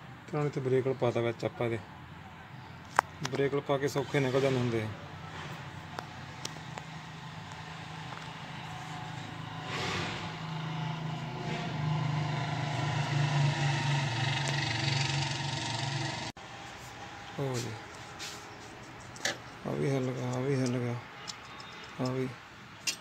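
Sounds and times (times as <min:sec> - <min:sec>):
vehicle engine running: 0:05.7 - 0:16.6.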